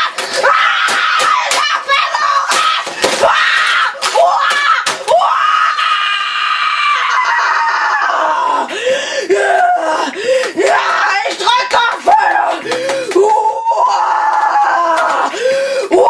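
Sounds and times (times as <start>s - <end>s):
boy screaming and shrieking: 0.0s - 8.7s, 9.3s - 16.0s.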